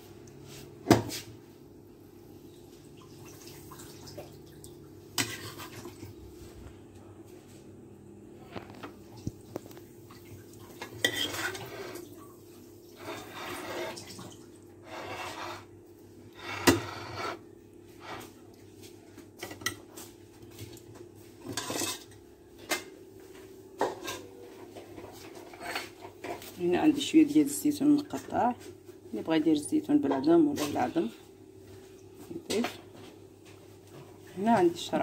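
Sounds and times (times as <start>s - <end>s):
spoon scraping dishes: 10.8s - 12.0s, 16.3s - 17.4s, 25.1s - 26.4s.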